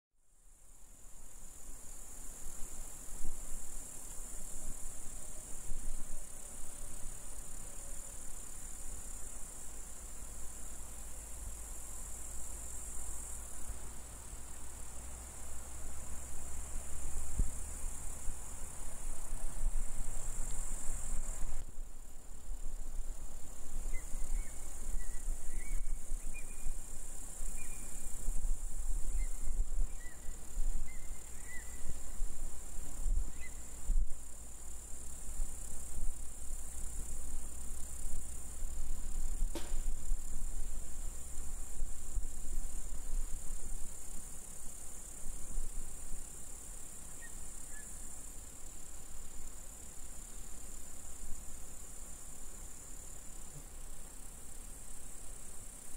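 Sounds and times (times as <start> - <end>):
insects chirring: 0.4 - 55.9
wind rumble on microphone: 17.0 - 21.8, 22.4 - 34.3
skylark chirps: 23.8 - 26.8.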